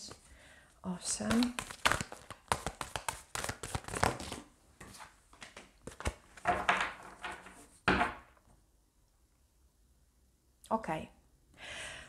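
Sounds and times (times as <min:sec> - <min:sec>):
cards being shuffled: 0:01.0 - 0:06.5.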